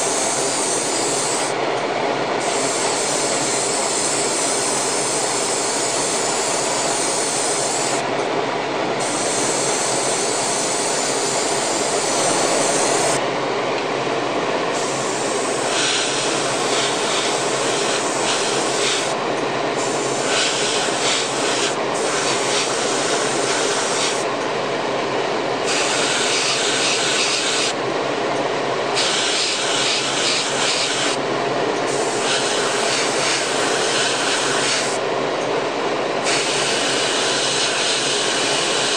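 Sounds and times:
exhaust fan running: 0.0s - 38.9s
airbrush hissing: 2.4s - 8.0s, 9.0s - 13.2s, 14.8s - 19.2s, 19.8s - 24.3s, 25.7s - 27.8s, 29.0s - 31.2s, 31.9s - 35.0s, 36.2s - 38.9s.

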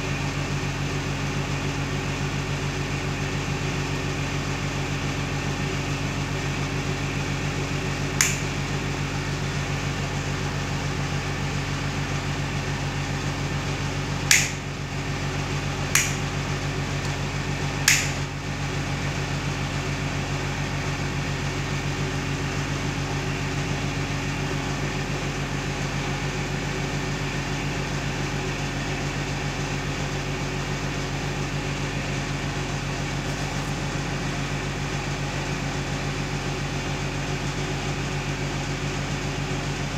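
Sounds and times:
steady low hum: 0.0s - 39.9s
rocker switch clicks: 8.2s - 8.6s, 14.3s - 14.6s, 16.0s - 16.3s, 17.9s - 18.3s.

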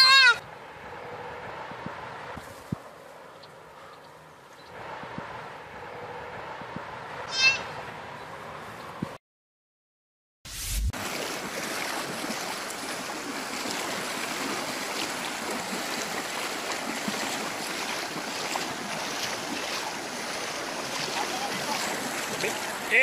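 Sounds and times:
river water rushing: 11.0s - 23.0s.

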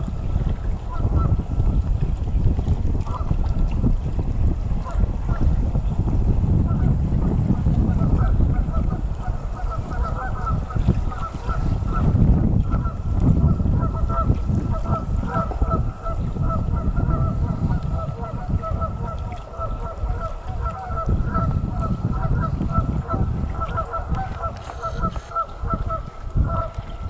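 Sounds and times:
low wind rumble on microphone: 0.0s - 27.0s
geese honking: 9.6s - 12.1s, 22.2s - 26.7s.

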